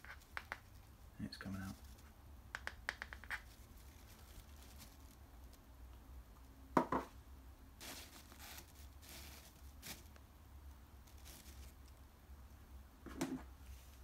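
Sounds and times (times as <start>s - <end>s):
tissue paper rustling and tearing: 7.8s - 10.1s, 11.1s - 11.8s.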